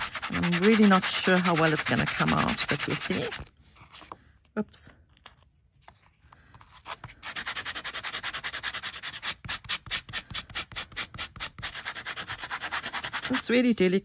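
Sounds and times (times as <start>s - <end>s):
nail buff rasping on metal tape: 0.0s - 3.4s.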